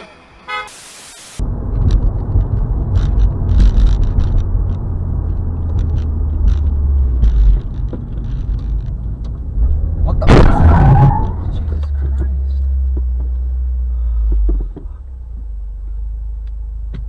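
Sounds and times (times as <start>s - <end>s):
car road and engine noise: 0.0s - 17.0s
small clicks and rattles: 1.8s - 9.5s.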